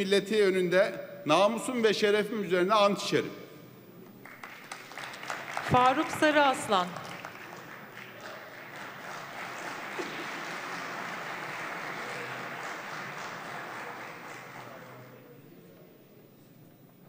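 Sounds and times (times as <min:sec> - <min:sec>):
audience applause: 0:04.2 - 0:15.2.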